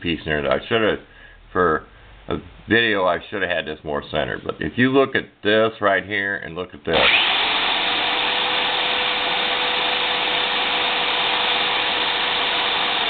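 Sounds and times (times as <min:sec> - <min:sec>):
electric drill motor whining: 0:06.9 - 0:13.0.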